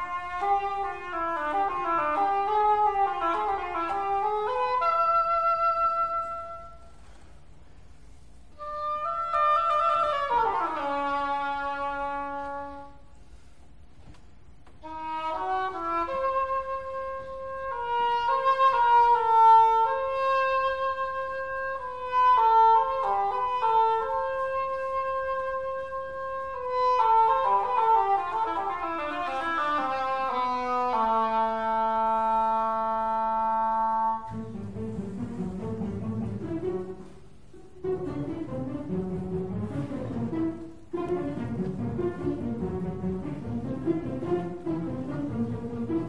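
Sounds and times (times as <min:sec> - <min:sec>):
english horn solo melody: 0:00.0 - 0:07.2, 0:08.5 - 0:13.1, 0:14.8 - 0:45.8
string orchestra accompaniment: 0:14.7 - 0:46.0.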